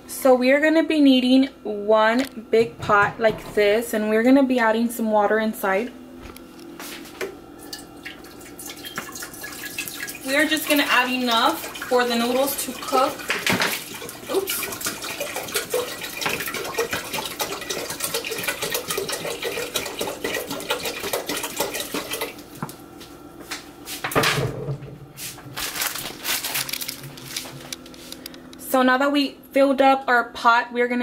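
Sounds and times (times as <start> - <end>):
water pouring into metal pot: 7.6 - 22.3.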